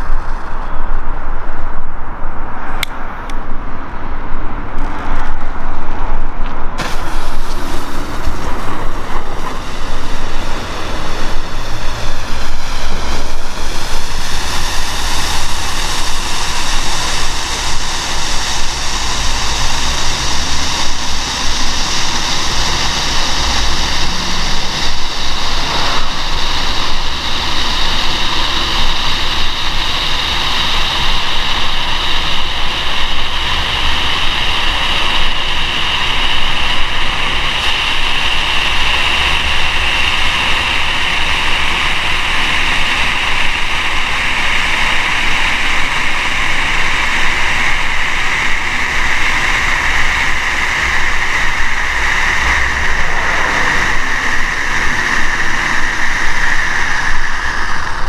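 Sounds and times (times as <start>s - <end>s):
firework flame hissing: 0.0s - 1.7s, 4.7s - 58.0s.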